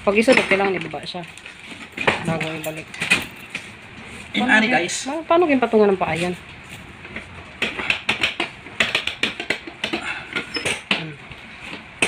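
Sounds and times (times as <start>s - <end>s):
chair footrest clicking and rattling: 7.0s - 11.1s.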